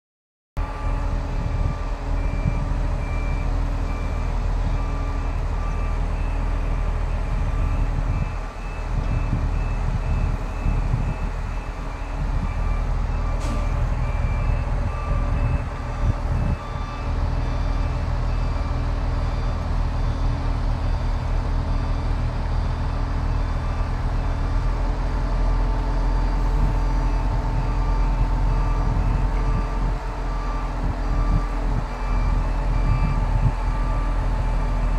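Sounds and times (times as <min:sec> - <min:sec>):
short electronic warning beep: 0:00.6 - 0:22.2, 0:25.5 - 0:34.9
diesel engine running under load: 0:00.6 - 0:34.9.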